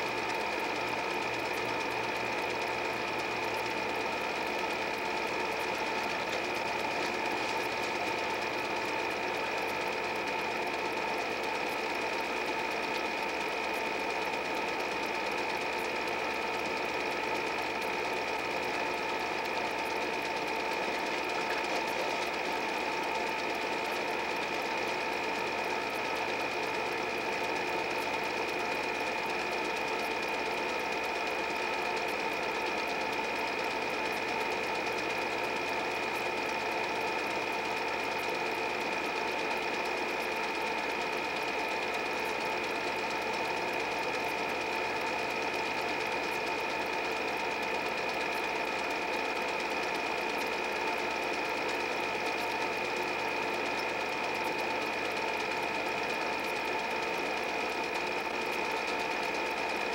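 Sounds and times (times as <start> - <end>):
projector whine: 0.0 - 59.9
movie projector clattering: 17.0 - 26.8.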